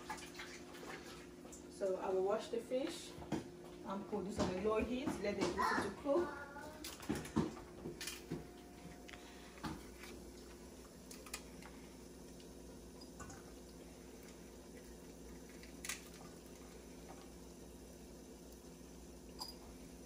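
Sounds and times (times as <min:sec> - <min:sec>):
water dripping and splashing: 0:00.0 - 0:01.7, 0:09.6 - 0:19.8
steady low hum: 0:00.0 - 0:20.0.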